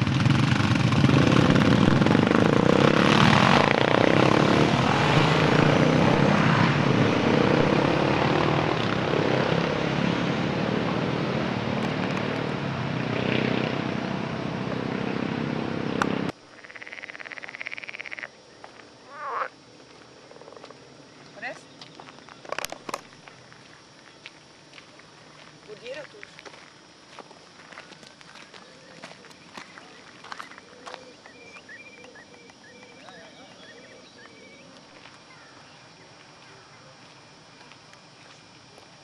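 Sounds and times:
motorcycles passing: 0:00.0 - 0:26.2, 0:27.1 - 0:39.0
outdoor background: 0:00.0 - 0:39.0.

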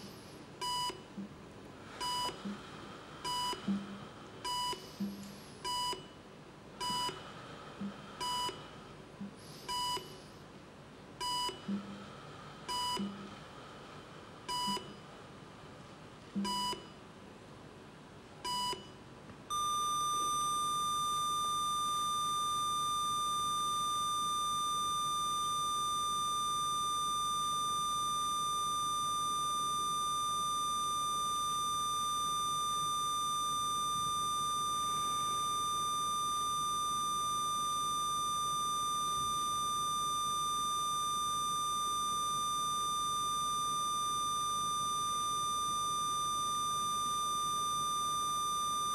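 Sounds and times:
heart-rate monitor beeping: 0:00.0 - 0:06.2, 0:06.8 - 0:10.3, 0:11.2 - 0:13.4, 0:14.4 - 0:15.1, 0:16.4 - 0:17.0, 0:18.4 - 0:48.9
flatline alarm tone: 0:19.5 - 0:48.9.

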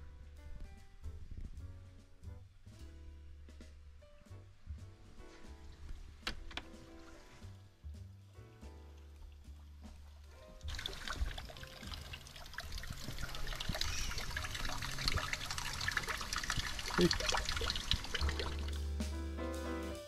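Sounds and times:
background music: 0:00.0 - 0:20.0
water trickling and splashing: 0:08.9 - 0:18.9.

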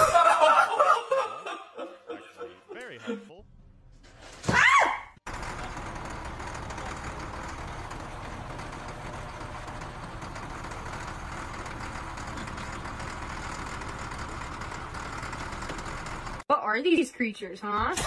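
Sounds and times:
diesel engine idling: 0:05.2 - 0:16.4.

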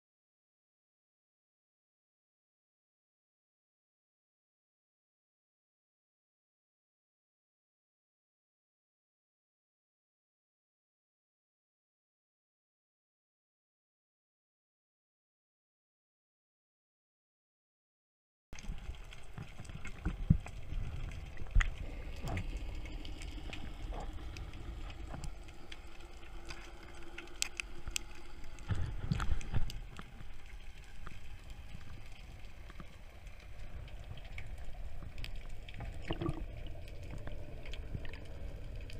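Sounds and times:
muffled underwater rumble: 0:18.6 - 0:38.9.

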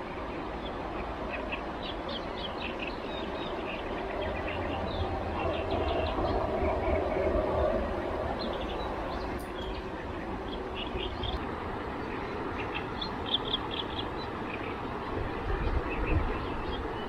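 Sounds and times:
small birds chirping: 0:08.0 - 0:11.4, 0:12.0 - 0:14.8.

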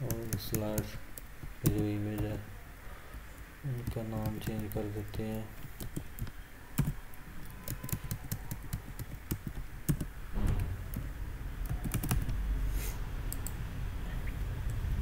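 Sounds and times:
steady low hum: 0:00.0 - 0:15.0
keyboard keystrokes and clicks: 0:03.8 - 0:12.4, 0:13.3 - 0:13.6.

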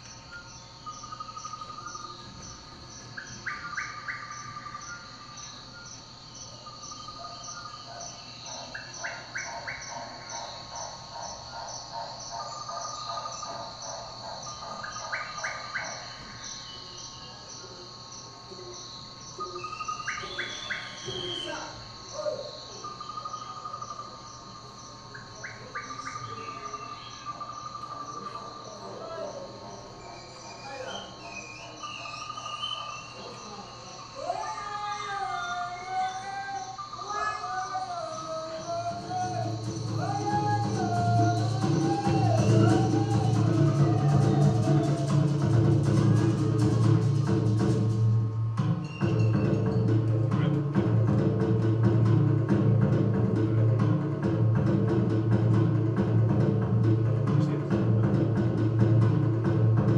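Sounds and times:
crickets chirping: 0:00.0 - 0:59.9
rising bird-like chirps: 0:18.5 - 0:50.5.

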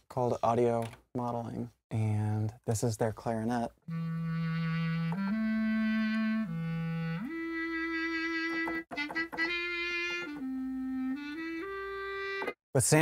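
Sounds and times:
clarinet melody: 0:03.8 - 0:12.6.

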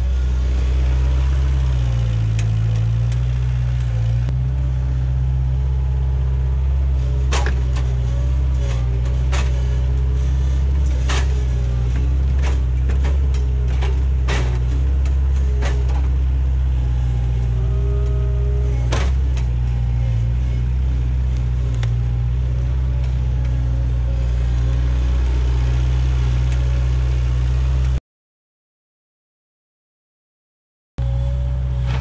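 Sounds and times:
loader engine running under load: 0:00.0 - 0:28.0, 0:31.0 - 0:32.0
hydraulic whine: 0:06.1 - 0:28.0
logs knocking down: 0:07.2 - 0:08.0, 0:11.0 - 0:16.3.

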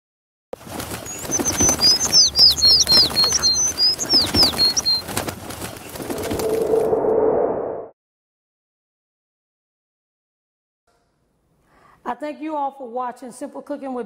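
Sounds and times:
wings fluttering: 0:00.6 - 0:07.0
birds chirping: 0:00.7 - 0:06.5.

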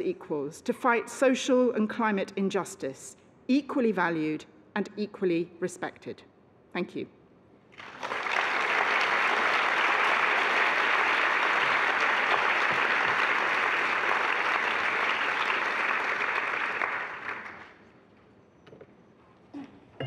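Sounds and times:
audience applauding: 0:07.8 - 0:17.8.

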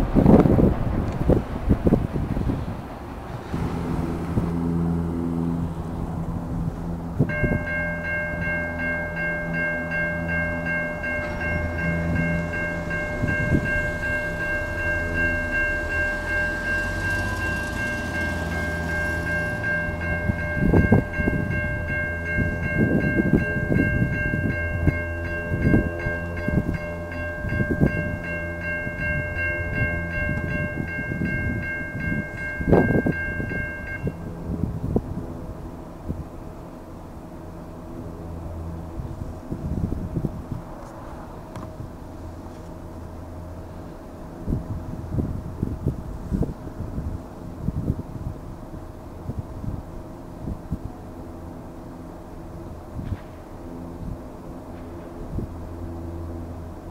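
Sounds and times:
low rumble with heavy thumps: 0:00.0 - 0:36.3
level crossing warning bells: 0:06.7 - 0:34.7.

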